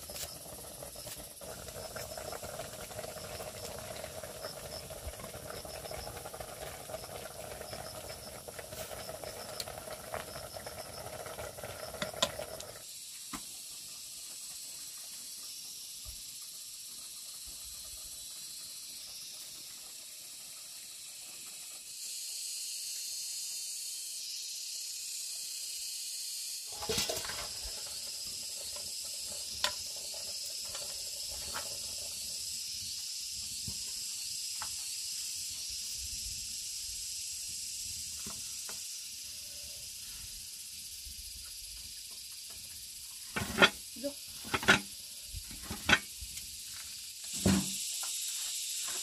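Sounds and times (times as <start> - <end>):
high-pitched insect drone: 11.8 - 49.0.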